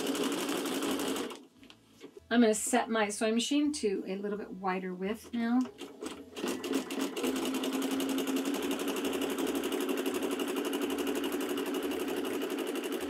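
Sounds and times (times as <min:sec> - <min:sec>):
sewing machine running: 0:00.0 - 0:01.4, 0:05.8 - 0:13.0.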